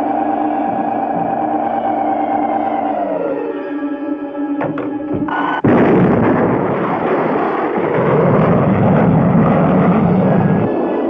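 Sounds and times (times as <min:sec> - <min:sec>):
cartoon rocket engine blast: 0:05.4 - 0:11.0.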